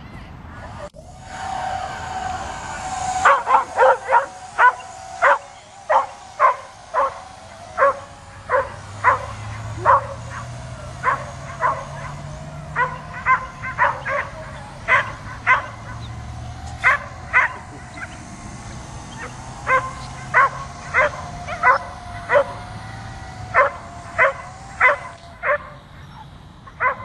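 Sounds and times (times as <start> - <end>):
drone propeller whine: 0.3 - 27.0
dog barking: 7.8 - 10.4, 11.0 - 16.0, 19.2 - 22.6, 23.6 - 25.8, 26.8 - 27.0.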